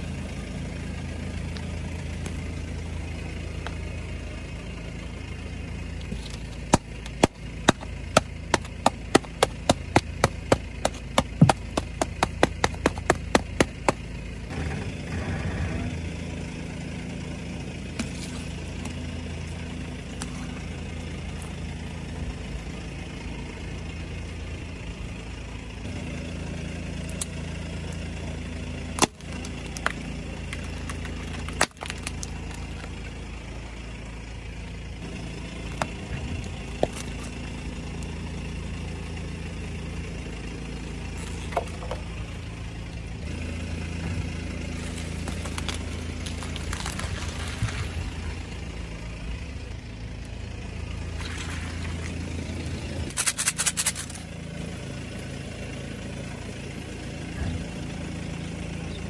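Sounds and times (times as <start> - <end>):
car engine idling: 0.0 - 59.0
tyre crushing objects crackling: 6.0 - 14.2, 28.9 - 33.0, 44.5 - 48.3.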